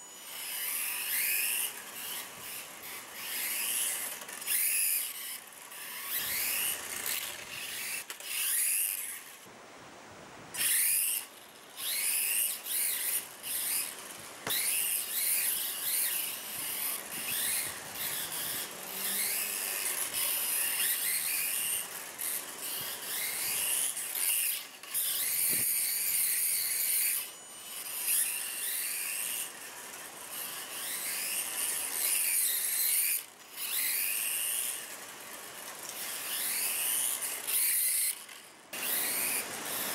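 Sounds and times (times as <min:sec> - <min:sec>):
electric motor whining: 0:00.0 - 0:09.5, 0:10.6 - 0:39.9
small tyres scrubbing concrete: 0:10.6 - 0:39.9.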